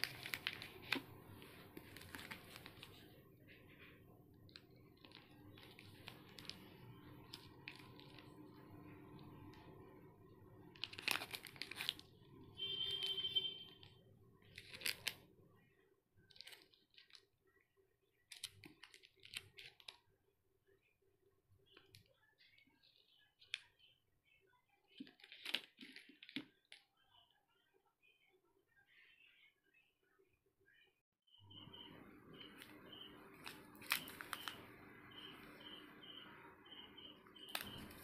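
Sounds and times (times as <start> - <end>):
plastic wrappers crinkling: 0.0 - 3.8, 4.4 - 9.6, 10.6 - 15.3, 16.3 - 17.3, 18.3 - 20.0, 24.9 - 26.8, 32.4 - 35.6, 37.4 - 38.0.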